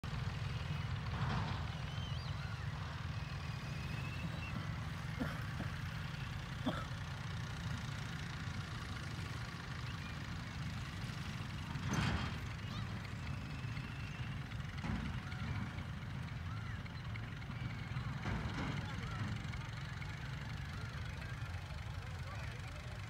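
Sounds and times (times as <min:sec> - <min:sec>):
birds chirping and whistling: 0:01.7 - 0:05.1.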